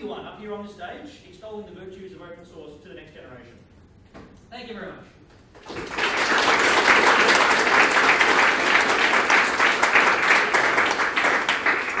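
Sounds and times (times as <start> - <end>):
audience applauding: 5.6 - 12.0.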